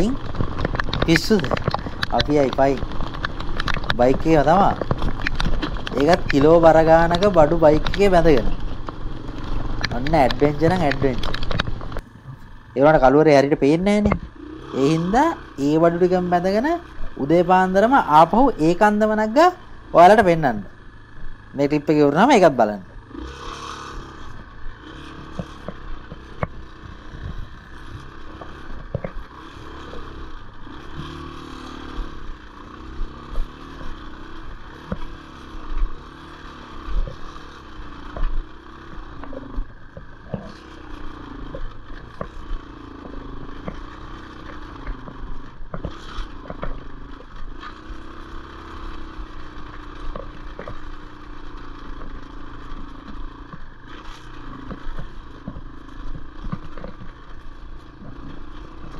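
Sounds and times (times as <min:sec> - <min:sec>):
knocks and rattles: 0:00.0 - 0:12.4, 0:36.8 - 0:47.7
motorcycle engine revving: 0:00.0 - 0:58.9.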